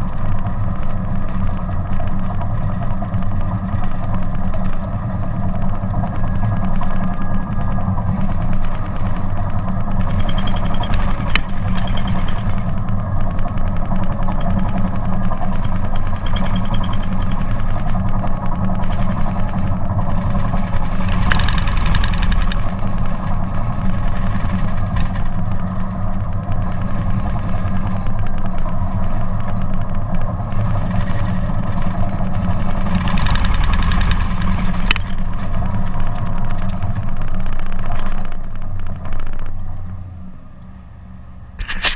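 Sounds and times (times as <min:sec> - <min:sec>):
bulldozer diesel engine: 0:00.0 - 0:41.9
sharp clicks: 0:06.6 - 0:23.2, 0:32.6 - 0:39.6.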